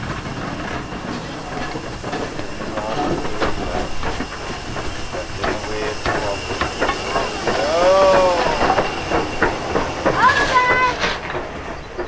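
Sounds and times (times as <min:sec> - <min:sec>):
locomotive wheels clicking and knocking: 0:00.0 - 0:12.0
steam hissing: 0:00.0 - 0:12.0.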